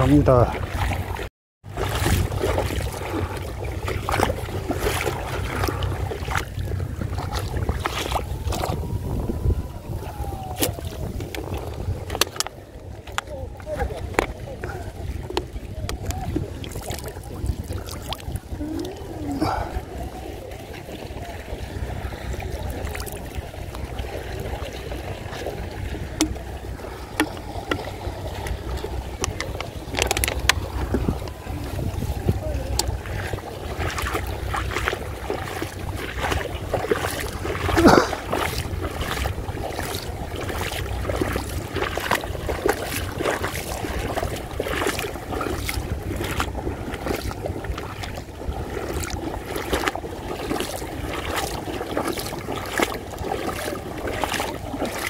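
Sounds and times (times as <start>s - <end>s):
wading steps splashing in water: 0.0s - 55.0s
wind rumble on microphone: 0.0s - 55.0s.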